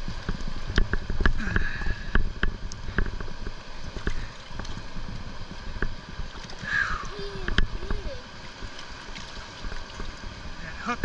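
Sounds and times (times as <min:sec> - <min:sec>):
wind and water rumble: 0:00.0 - 0:11.0.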